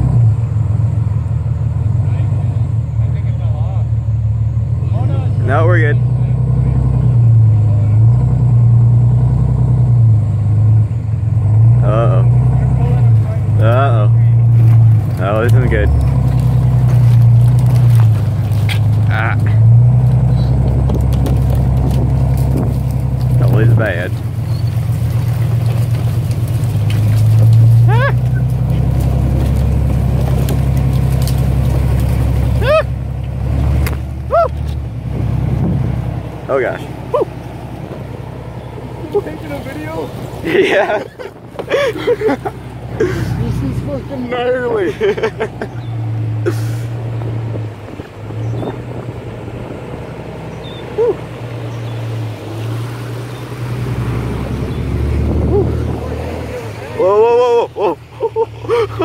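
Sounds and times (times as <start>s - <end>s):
diesel engine under load: 0.0s - 59.0s
muddy water washing: 11.5s - 59.0s
wind on microphone: 20.4s - 23.0s, 35.1s - 36.1s, 47.2s - 50.2s, 54.5s - 56.3s
people shouting: 27.8s - 28.5s, 32.6s - 33.0s, 34.2s - 34.6s, 55.4s - 58.0s.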